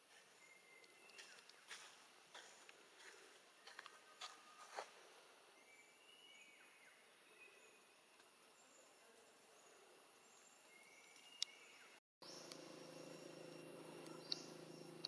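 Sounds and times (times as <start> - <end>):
high insect drone: 12.3 - 15.0.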